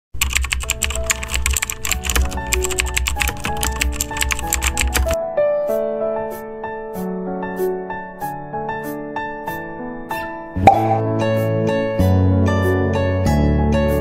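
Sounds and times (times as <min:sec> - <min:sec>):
keyboard typing clicks: 0:00.2 - 0:05.2
background music with piano: 0:00.2 - 0:14.0.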